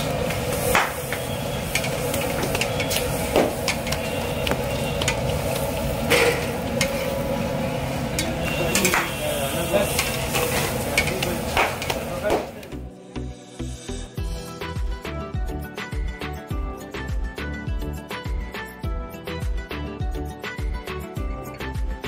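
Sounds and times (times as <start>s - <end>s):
bread deep-frying in hot oil: 0.0s - 12.4s.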